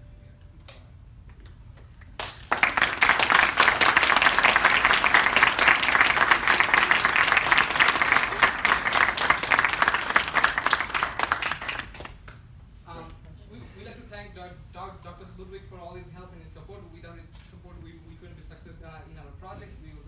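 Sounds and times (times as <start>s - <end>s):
audience applauding: 2.0s - 12.4s.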